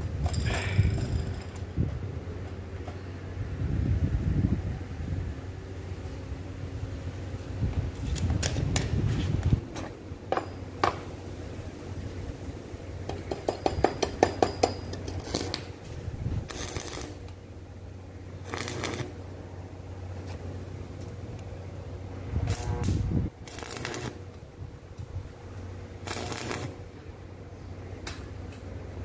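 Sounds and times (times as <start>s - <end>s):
stick welder crackling: 7.9s - 11.2s, 13.0s - 17.5s, 18.2s - 19.4s, 22.4s - 27.0s
metal rods clinking and knocking: 13.1s - 15.5s.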